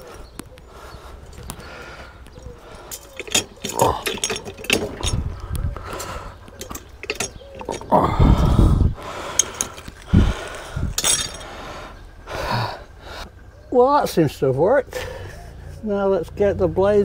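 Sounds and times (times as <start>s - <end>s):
metal clicks and knocks: 2.3s - 8.0s, 9.4s - 10.1s.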